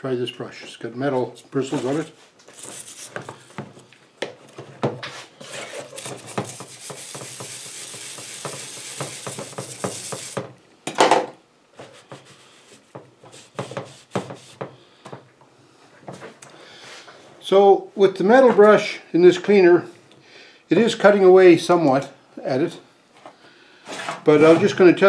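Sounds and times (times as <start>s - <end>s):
wire brush scrubbing metal: 5.4s - 10.4s.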